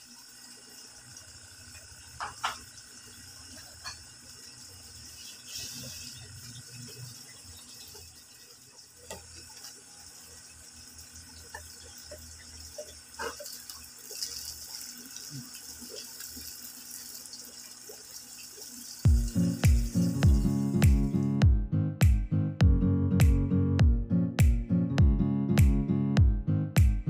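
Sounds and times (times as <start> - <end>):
water trickling through hose: 0.0 - 20.8
water drips: 6.1 - 21.2
loud music: 19.1 - 27.0.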